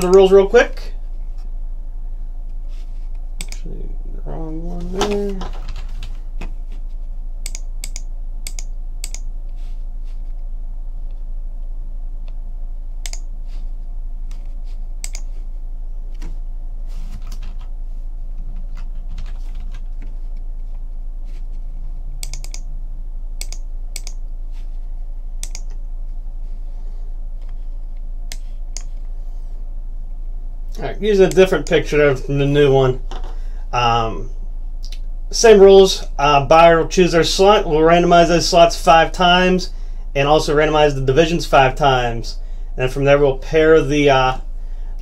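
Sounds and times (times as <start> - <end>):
low electrical hum: 0.0 - 45.0
keyboard and mouse clicks: 3.4 - 3.6, 7.4 - 9.3, 13.0 - 13.3, 15.0 - 15.3, 22.2 - 22.7, 23.4 - 24.2, 25.4 - 25.8.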